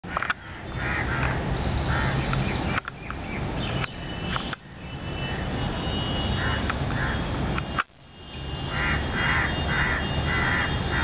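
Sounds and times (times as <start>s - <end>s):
crows cawing: 0.1s - 2.2s, 6.4s - 7.3s, 8.7s - 11.0s.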